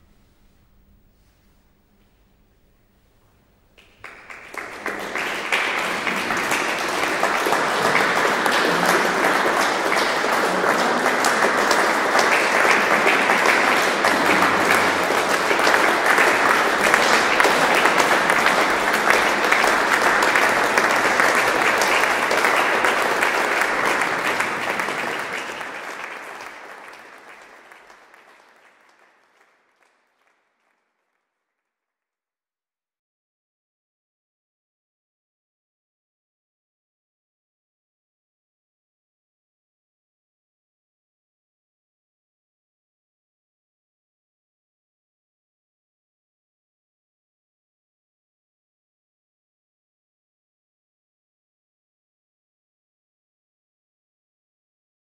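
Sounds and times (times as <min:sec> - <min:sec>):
audience applauding: 0:03.8 - 0:31.0.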